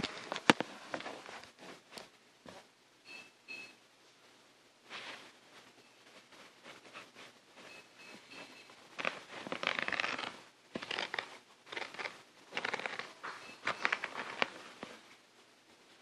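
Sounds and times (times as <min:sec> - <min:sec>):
crinkling and rustling: 0:00.0 - 0:02.7, 0:04.8 - 0:16.0.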